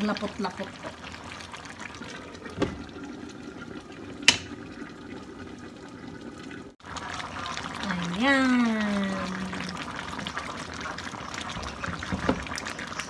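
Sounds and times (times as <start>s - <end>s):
sauce bubbling in wok: 0.0s - 13.0s
dull knock: 11.6s - 12.5s.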